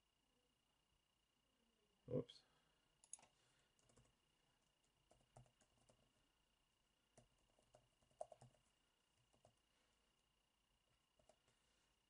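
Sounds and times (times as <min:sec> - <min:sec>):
soft keyboard typing: 0:03.0 - 0:06.1, 0:07.1 - 0:09.7, 0:11.1 - 0:11.6.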